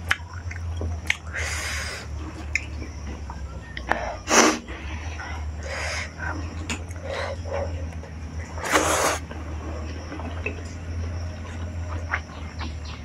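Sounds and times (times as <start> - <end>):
wet mouth clicks and chewing: 0.0 - 1.3, 2.2 - 4.0, 7.8 - 13.0
steady low hum: 0.0 - 13.0
sharp noisy sniff: 1.3 - 2.1, 4.2 - 6.2, 8.6 - 9.3.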